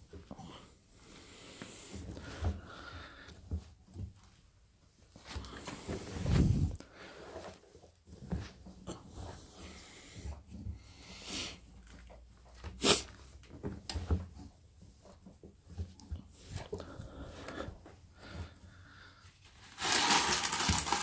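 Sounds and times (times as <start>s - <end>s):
fabric rustling: 4.1s - 9.5s.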